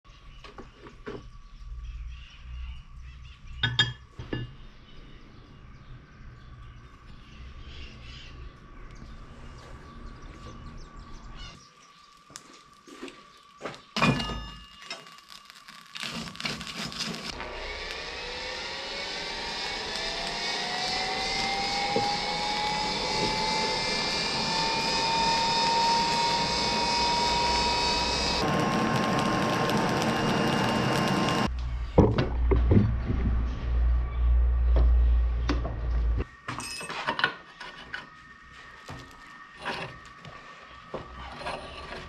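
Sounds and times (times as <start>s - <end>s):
motor-like whine rising in pitch: 17.2s - 32.6s.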